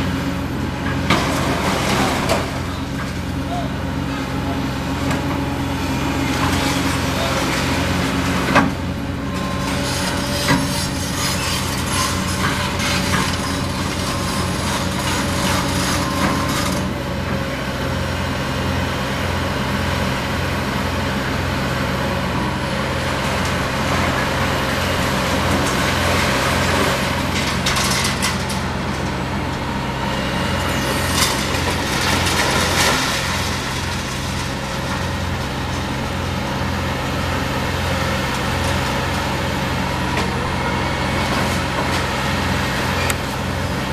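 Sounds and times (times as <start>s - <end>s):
excavator diesel engine running: 0.0s - 43.9s
debris crunching and scraping: 23.4s - 36.2s.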